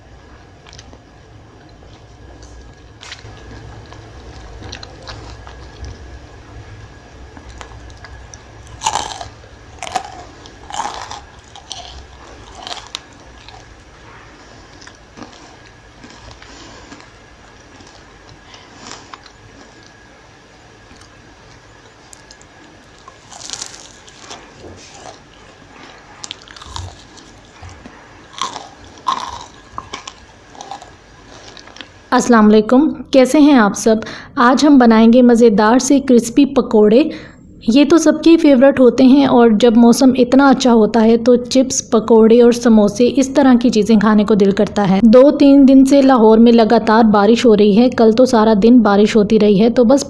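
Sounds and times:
chewing: 1.6s - 6.1s, 7.4s - 20.0s, 20.8s - 32.0s
crunching bites of fried snack: 7.4s - 20.0s, 20.9s - 32.0s.

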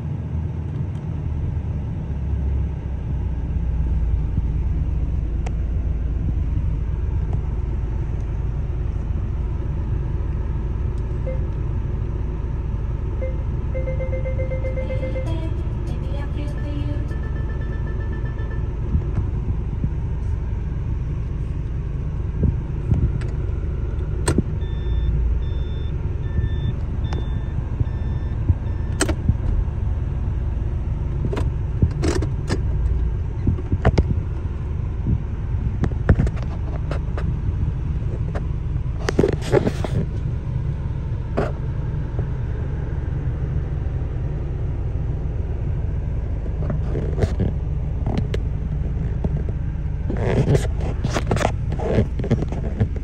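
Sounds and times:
diesel engine running: 0.0s - 53.0s
short electronic beeps: 11.2s - 11.5s, 13.2s - 15.6s, 16.5s - 18.8s, 24.6s - 29.0s.

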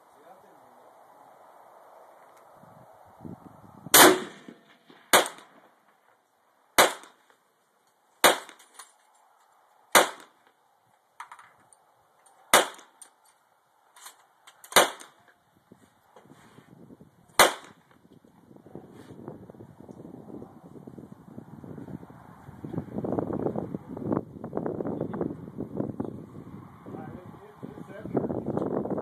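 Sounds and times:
gunshots: 3.9s - 5.6s, 6.8s - 7.2s, 8.2s - 8.8s, 10.0s - 10.4s, 12.5s - 13.0s, 14.7s - 15.2s, 17.4s - 17.8s.

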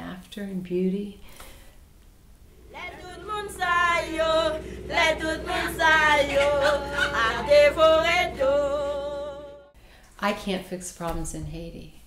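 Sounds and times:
women singing unaccompanied: 2.6s - 9.7s.

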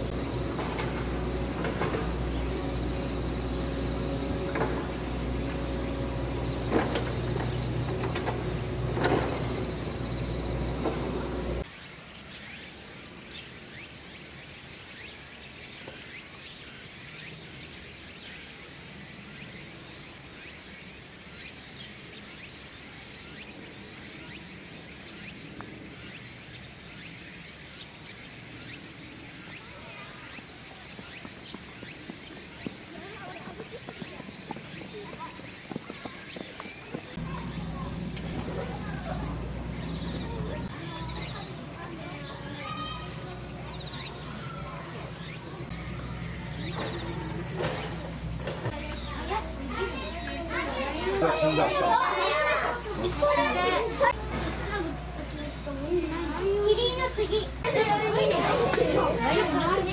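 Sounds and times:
steady low hum: 0.0s - 11.7s, 37.1s - 51.1s
insects chirring: 0.0s - 12.0s, 18.6s - 59.9s.

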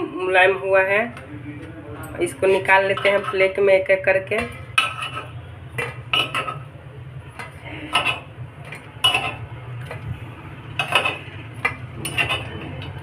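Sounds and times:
steady low hum: 0.0s - 13.0s
metal spoon clinking on pan: 2.5s - 3.6s, 4.4s - 6.7s, 7.4s - 10.0s, 10.8s - 12.9s.

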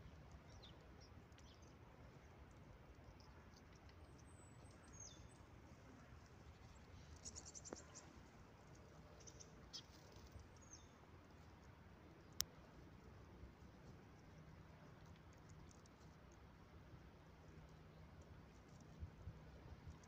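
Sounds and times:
small birds chirping: 0.0s - 5.6s, 6.2s - 12.5s
low steady rumble: 0.0s - 20.0s.

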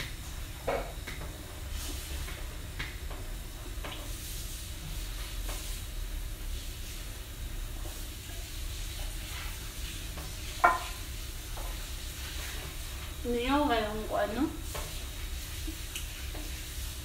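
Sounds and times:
mug knocking on stone tabletop: 10.6s - 10.8s.

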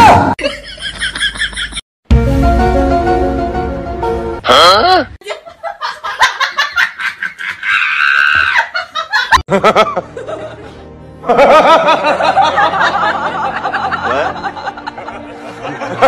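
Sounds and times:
background music: 2.1s - 5.1s, 9.5s - 16.0s
people laughing: 5.2s - 16.0s.

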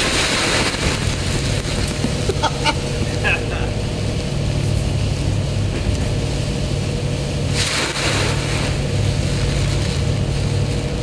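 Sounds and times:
water splashing rush: 0.0s - 3.6s, 7.4s - 11.0s
ferry engines droning: 1.9s - 7.4s.

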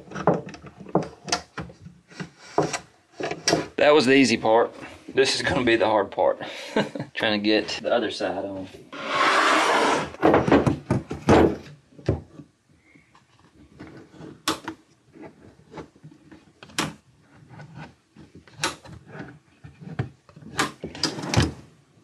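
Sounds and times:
metal drawer glides scraping: 8.9s - 10.2s.

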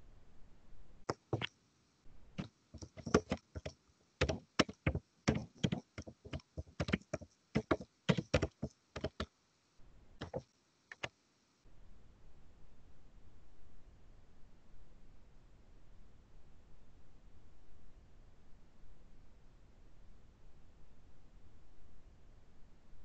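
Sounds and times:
keyboard key clicks: 2.8s - 9.3s, 10.2s - 11.1s.

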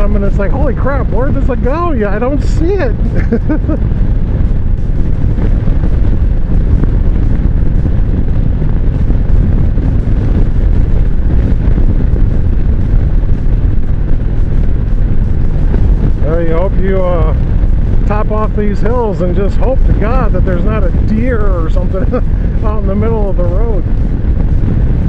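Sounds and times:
motorcycle engine running: 0.0s - 25.0s
wind buffeting microphone: 0.0s - 25.0s.

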